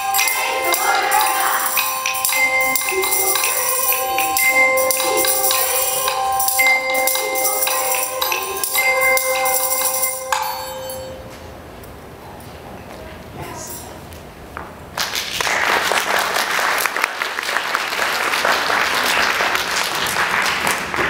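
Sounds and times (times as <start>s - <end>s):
high jingling shimmer: 0.0s - 11.4s
hand bells ringing: 0.0s - 11.5s.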